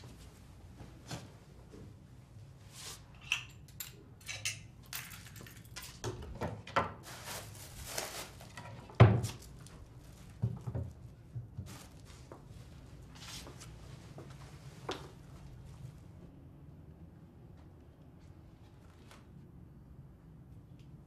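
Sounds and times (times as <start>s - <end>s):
plastic bag rustling: 7.0s - 13.6s.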